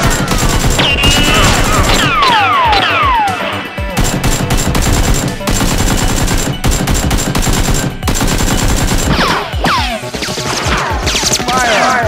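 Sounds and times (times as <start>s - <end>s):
machine-gun bursts: 0.0s - 2.1s, 4.0s - 9.3s.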